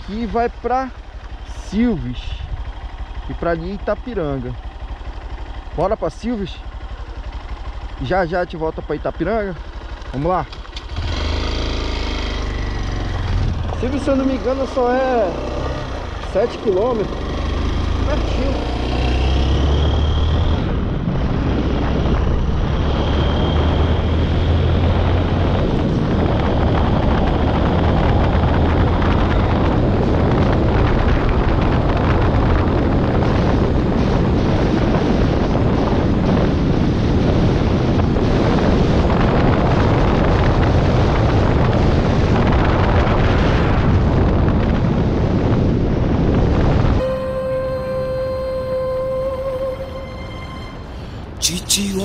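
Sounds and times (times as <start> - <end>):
motorcycle engine running: 0.0 - 51.5
wind buffeting microphone: 10.7 - 14.6, 15.2 - 51.4.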